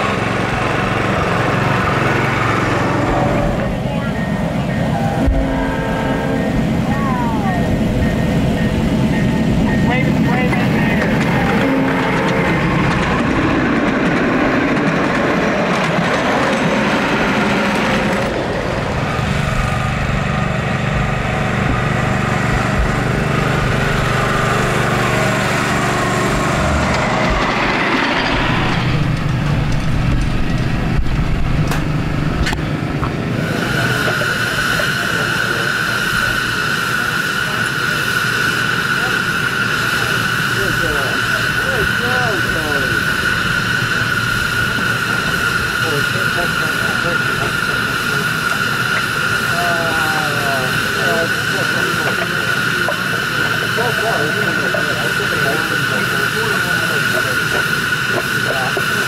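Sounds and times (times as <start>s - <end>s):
miniature train engine hum: 0.0s - 59.0s
rumbling train cars: 0.0s - 59.0s
steady high-pitched tone: 2.2s - 19.2s.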